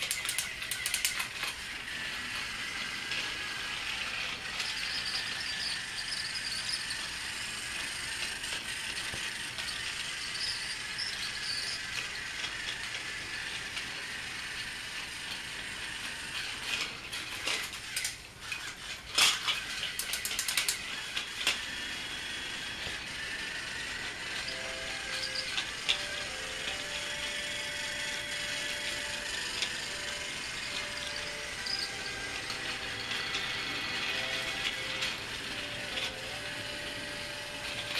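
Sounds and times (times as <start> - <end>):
sharp clicks and rattles: 0.0 - 1.7, 16.3 - 21.7
toy train motor whirring: 0.0 - 37.9.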